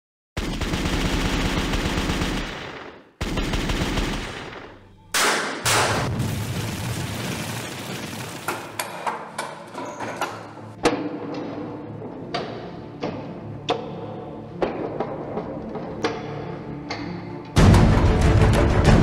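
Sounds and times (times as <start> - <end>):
machine-gun fire: 0.4 - 8.5
loud explosion blasts: 5.6 - 8.2.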